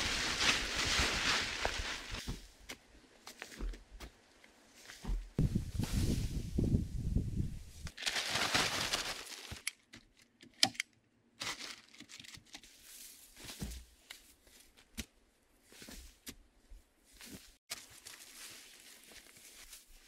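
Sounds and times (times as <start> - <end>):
plastic tarpaulin rustling: 0.0 - 2.3, 7.9 - 9.7, 11.4 - 12.4.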